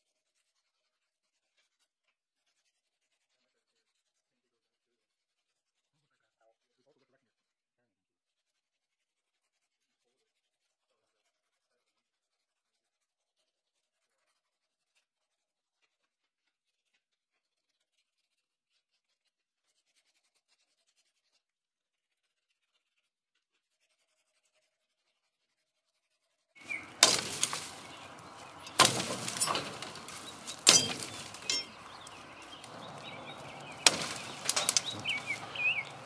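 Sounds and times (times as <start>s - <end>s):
birds chirping: 26.6s - 36.0s
sword chopping tree branches: 26.6s - 36.0s.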